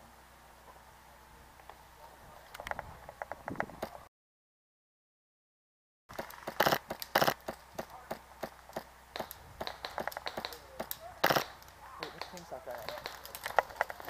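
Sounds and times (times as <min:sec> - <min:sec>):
airsoft gun clicks and pops: 0:06.1 - 0:14.0
loud airsoft gunshots: 0:06.2 - 0:13.6.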